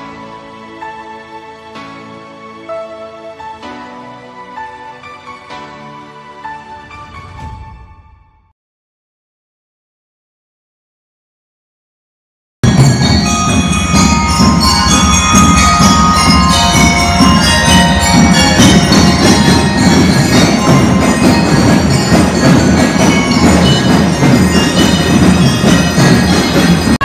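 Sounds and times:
bell-lyre melody: 0:12.6 - 0:27.0
drums: 0:12.6 - 0:27.0.

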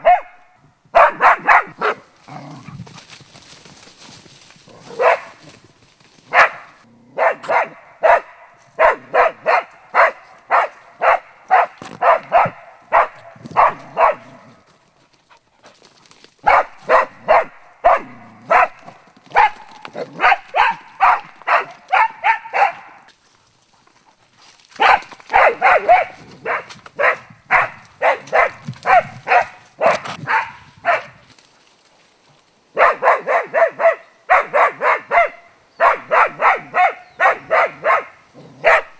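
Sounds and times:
dog barking: 0:00.0 - 0:02.1, 0:04.9 - 0:05.4, 0:06.3 - 0:14.6, 0:16.4 - 0:23.1, 0:24.8 - 0:31.2, 0:32.8 - 0:38.9.

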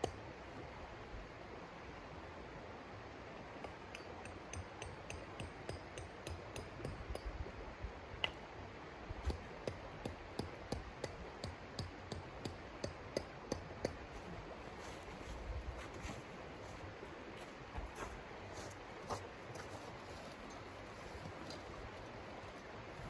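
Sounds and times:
river flowing: 0:12.4 - 0:23.0.

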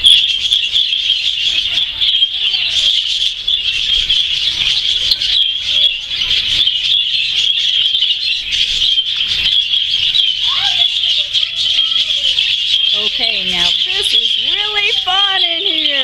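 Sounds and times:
budgies chattering and chirping: 0:00.0 - 0:16.0.

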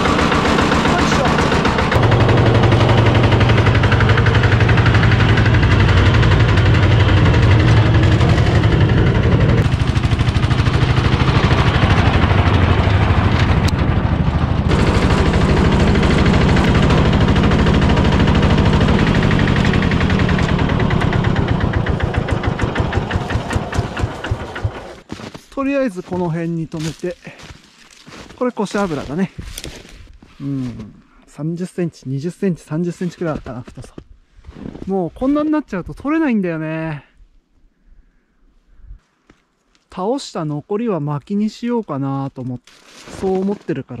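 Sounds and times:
tracked vehicle engine under load: 0:00.0 - 0:31.0.

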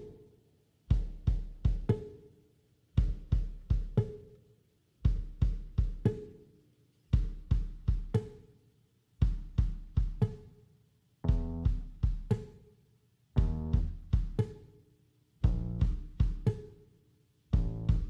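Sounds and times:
music with drum beat and bass: 0:00.0 - 0:00.3, 0:00.9 - 0:02.3, 0:03.0 - 0:04.4, 0:05.0 - 0:06.5, 0:07.1 - 0:08.5, 0:09.2 - 0:10.6, 0:11.2 - 0:12.7, 0:13.4 - 0:14.8, 0:15.4 - 0:16.9, 0:17.5 - 0:18.0.

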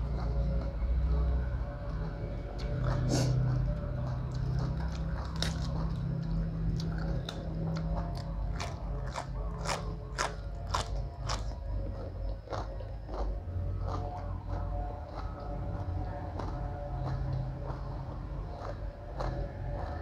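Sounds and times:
person chewing crisp cabbage: 0:00.0 - 0:20.0.

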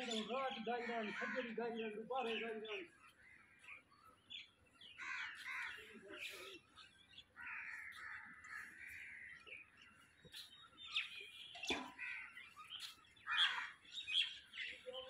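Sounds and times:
bird chatter: 0:00.0 - 0:15.0
harsh crow caws: 0:00.7 - 0:01.6, 0:04.9 - 0:06.0, 0:07.4 - 0:09.6, 0:11.9 - 0:12.5, 0:13.2 - 0:13.9.

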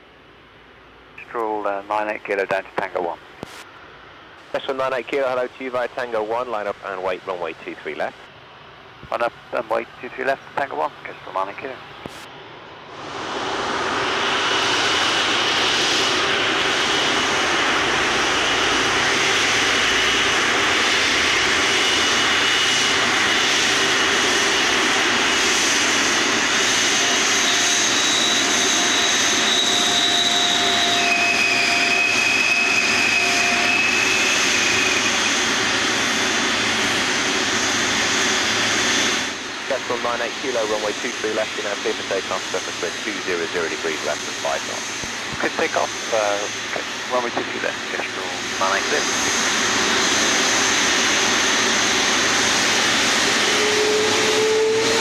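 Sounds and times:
jet engines running: 0:00.0 - 0:55.0
wheel brakes squealing: 0:27.5 - 0:35.4.

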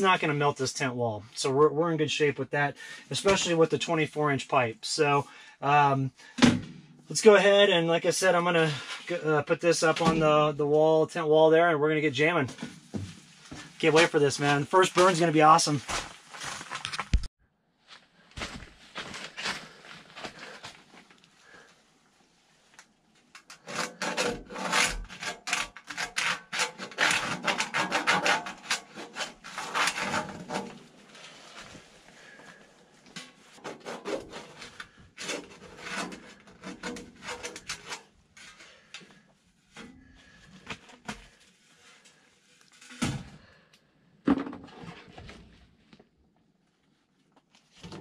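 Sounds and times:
scrapes and rustles: 0:12.5 - 0:17.3.

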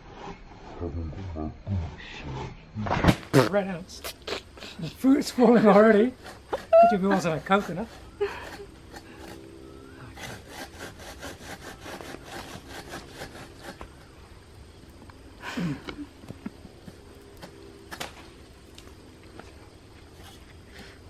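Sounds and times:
hand saw cutting wood: 0:05.8 - 0:09.4, 0:10.0 - 0:14.1.

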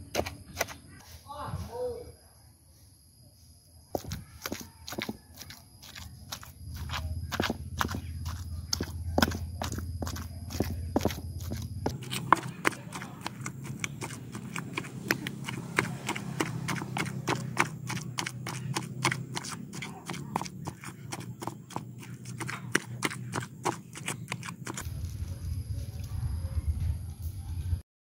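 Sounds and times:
pestle pounding in stone mortar: 0:00.0 - 0:00.8, 0:04.0 - 0:24.8.

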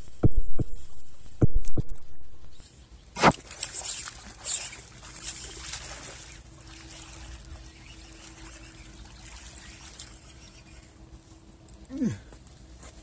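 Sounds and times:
sharp crack: 0:03.2 - 0:04.0
fish splashing in water: 0:03.2 - 0:10.9.

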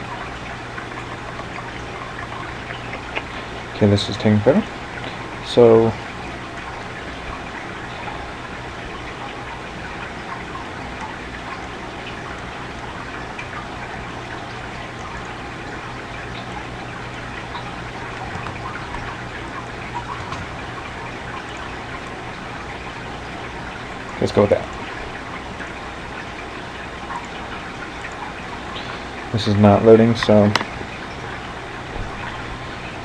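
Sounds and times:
microphone hiss and hum: 0:00.0 - 0:33.0.

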